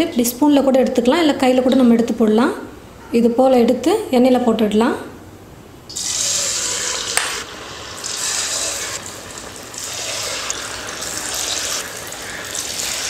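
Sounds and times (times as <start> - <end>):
batter sizzling in hot oil: 5.9 - 13.0.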